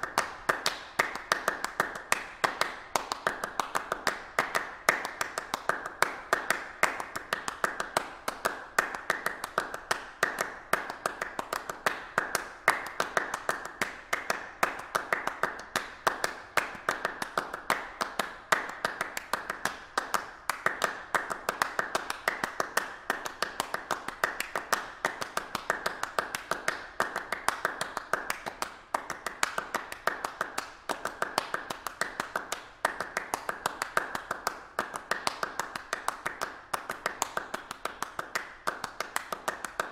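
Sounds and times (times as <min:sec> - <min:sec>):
rapid sharp claps or taps: 0:00.0 - 0:39.9.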